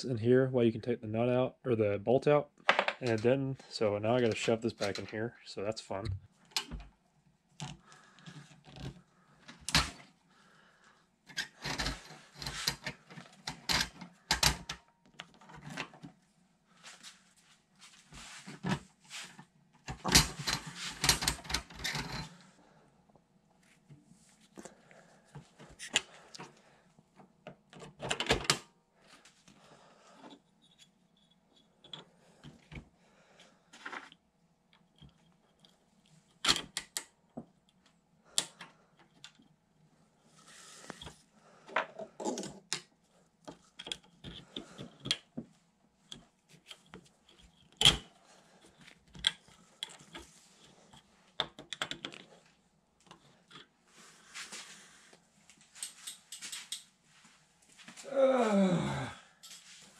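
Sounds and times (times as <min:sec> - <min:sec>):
metallic clicks scrapes and knocks: 0:11.3 - 0:16.1, 0:19.9 - 0:22.4.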